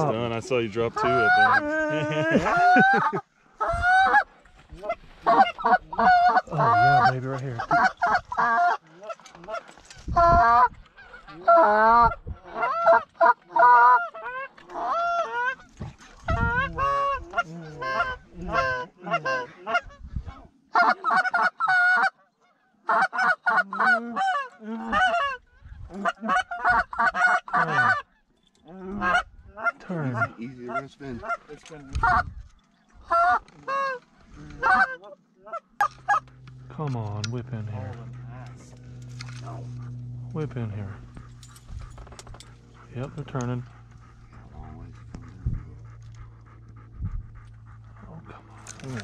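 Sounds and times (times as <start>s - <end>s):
goose calls honking and clucking: 0.6s - 1.8s, 2.4s - 28.1s, 28.8s - 49.0s.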